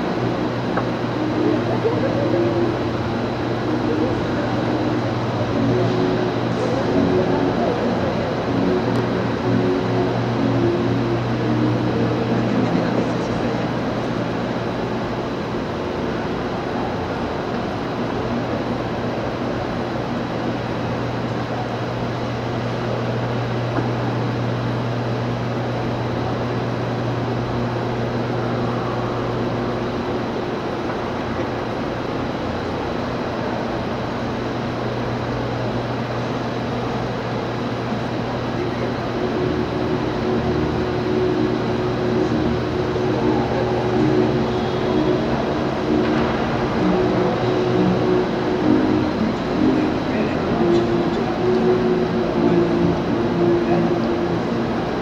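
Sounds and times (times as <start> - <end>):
electric fans whirring: 0.0 - 55.0.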